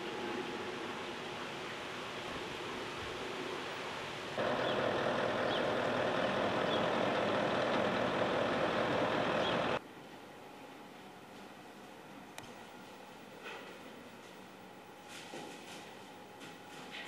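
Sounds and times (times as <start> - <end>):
rushing background noise: 0.0 - 9.8.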